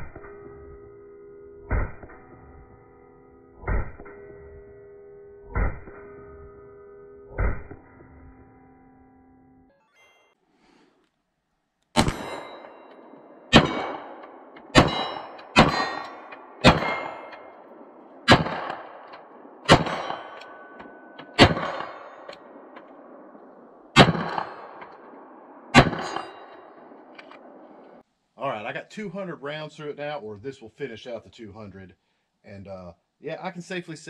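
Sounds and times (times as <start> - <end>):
pistol shots: 12.0 - 28.0
steel targets clanging: 12.0 - 28.0.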